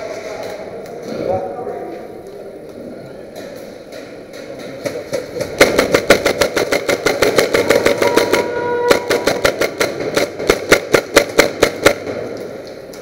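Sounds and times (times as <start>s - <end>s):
airsoft guns firing: 4.8s - 12.7s.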